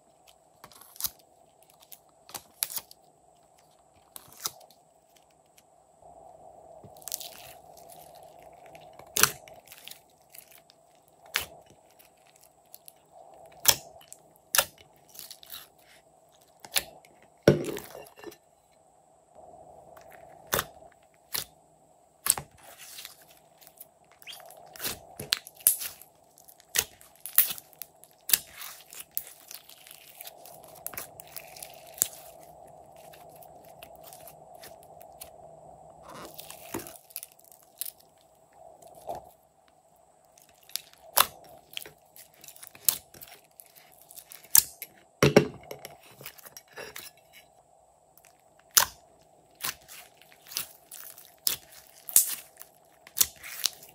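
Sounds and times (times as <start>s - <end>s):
slime squishing: 6.9s - 17.0s, 22.2s - 35.3s, 36.0s - 38.2s, 40.3s - 44.6s, 49.5s - 53.9s.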